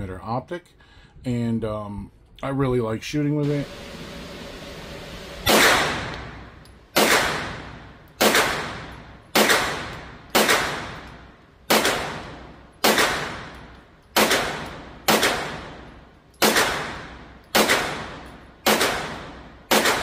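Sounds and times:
pistol shots echoing indoors: 5.5s - 20.0s.

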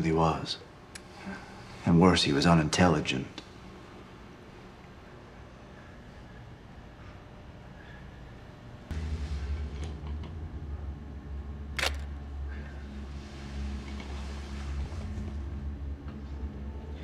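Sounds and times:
low hum: 3.4s - 17.0s
camera shutter click: 11.8s - 12.1s.

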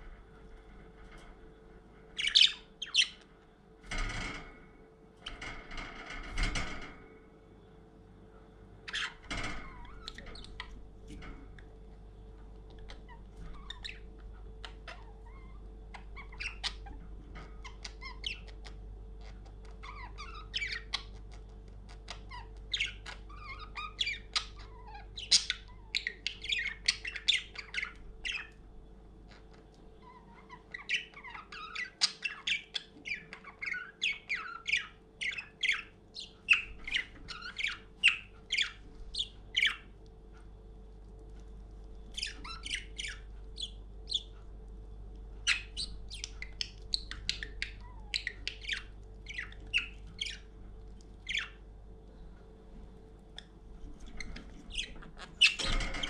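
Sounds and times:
budgerigar chirping and squawking: 2.2s - 3.2s, 8.9s - 10.8s, 12.7s - 17.0s, 17.6s - 28.6s, 29.3s - 40.0s, 42.1s - 44.4s, 45.4s - 50.6s, 51.2s - 51.7s, 53.4s - 56.0s.

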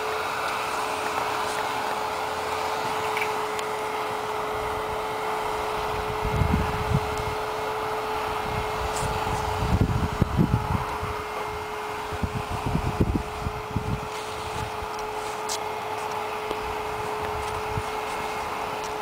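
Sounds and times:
steady hiss and hum: 0.0s - 19.0s
wind buffeting microphone: 4.4s - 15.2s, 16.4s - 18.5s.

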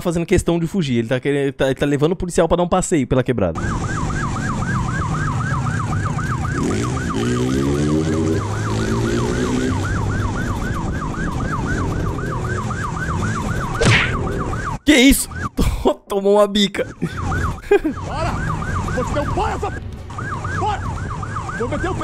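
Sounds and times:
motorcycle engine: 3.6s - 14.8s
police siren yelp: 3.6s - 15.6s, 16.8s - 22.0s.

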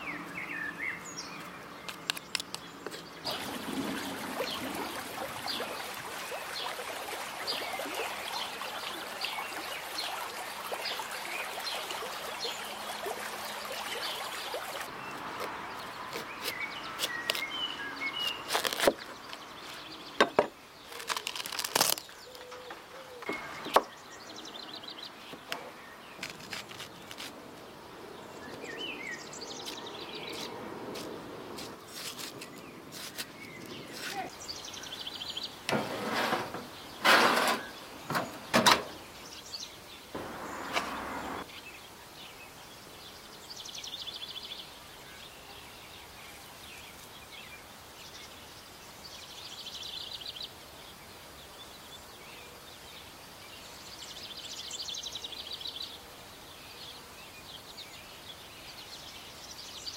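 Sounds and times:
birds chirping faintly: 0.0s - 59.9s
knife cutting watermelon: 15.4s - 17.6s, 18.2s - 19.1s, 25.3s - 27.4s.

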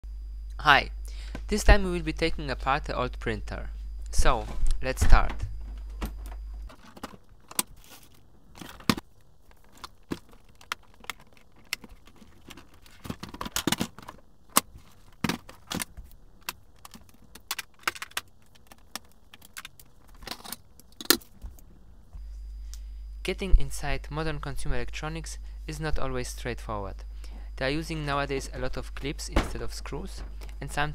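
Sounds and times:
plastic casing clicks and rattles: 8.6s - 21.3s.

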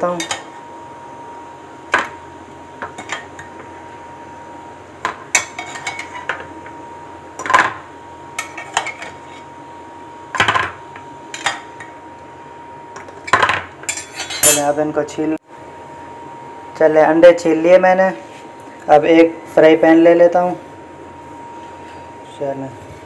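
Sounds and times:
metal tongs clinking on pot: 13.9s - 14.8s.

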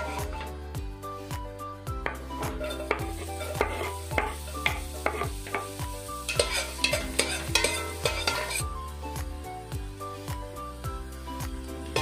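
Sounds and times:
background music with a beat: 0.0s - 12.0s
garlic sizzling in oil: 2.0s - 12.0s
metal spoon scraping a pot: 2.4s - 5.4s, 6.3s - 8.6s.

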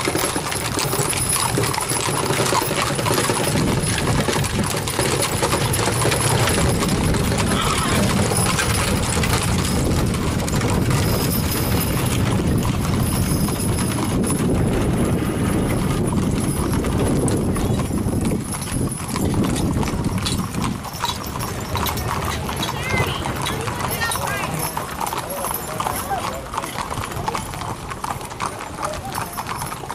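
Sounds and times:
horse hooves clip-clopping on pavement: 0.0s - 29.9s.

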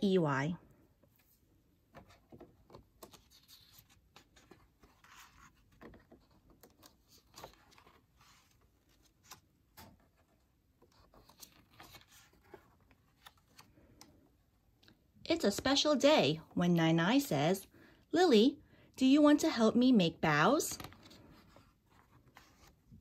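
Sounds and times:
book pages turning: 1.1s - 14.2s, 20.8s - 23.0s.

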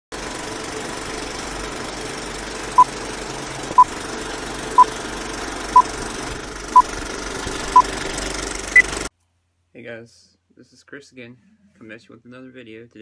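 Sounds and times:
film projector clatter: 0.1s - 9.1s.

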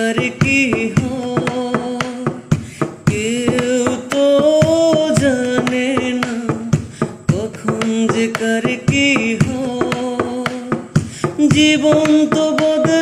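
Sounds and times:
steady percussion beat: 0.0s - 13.0s.

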